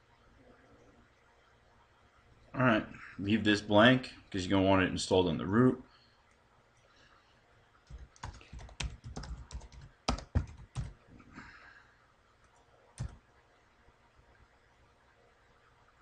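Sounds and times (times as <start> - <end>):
computer keyboard typing: 7.9 - 11.0, 12.4 - 13.2.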